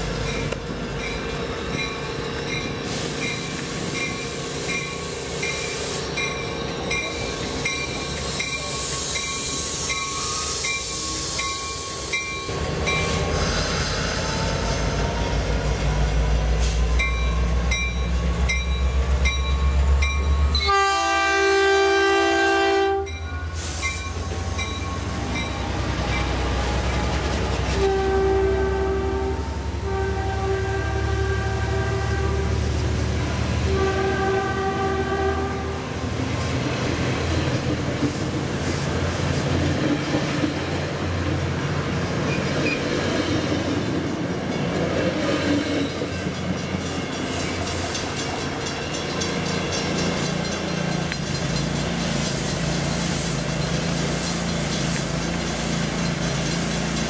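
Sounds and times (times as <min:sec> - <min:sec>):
diesel locomotive engine rumble: 0:00.0 - 0:57.0
train rolling past: 0:00.0 - 0:57.0
crossing bells dinging: 0:00.2 - 0:13.3, 0:17.0 - 0:20.7, 0:23.0 - 0:26.4, 0:45.8 - 0:52.3
train horn blast: 0:20.5 - 0:23.7, 0:27.6 - 0:36.0.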